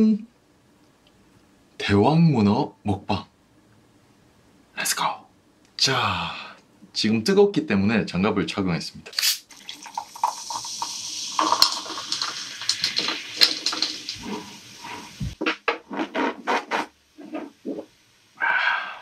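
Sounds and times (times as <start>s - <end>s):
drink pouring into glass: 9.5s - 14.6s
bottle knocking and rubbing: 11.4s - 17.9s.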